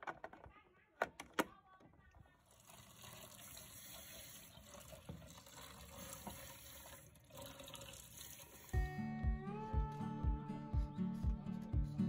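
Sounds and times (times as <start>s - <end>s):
tap water running: 2.4s - 8.8s.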